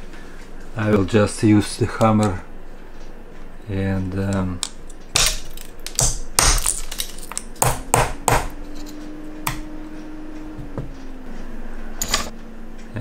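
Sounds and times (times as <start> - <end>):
glass cracking: 4.6 - 7.6
glass shards clinking: 4.9 - 7.6.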